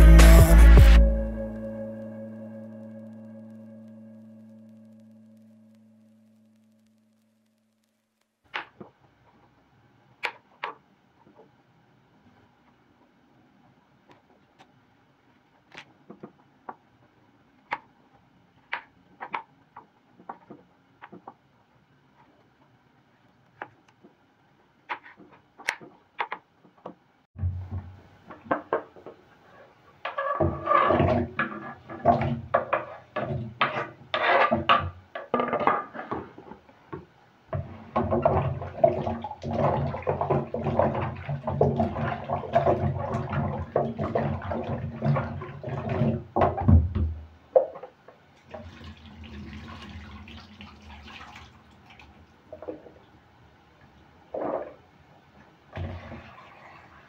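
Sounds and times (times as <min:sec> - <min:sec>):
faint water splashing: 0:47.5 - 0:57.0
tap water running into sink: 0:48.4 - 0:52.7.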